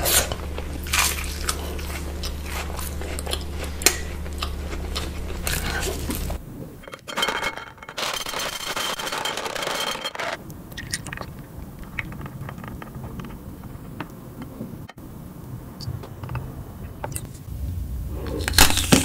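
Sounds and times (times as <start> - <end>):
chocolate balls clattering onto glass: 6.9 - 10.4.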